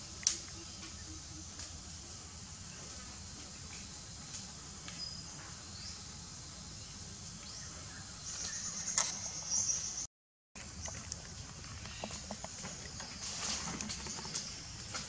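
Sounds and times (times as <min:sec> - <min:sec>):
rapid insect chirring: 0:00.0 - 0:10.1
insects buzzing: 0:00.0 - 0:15.0.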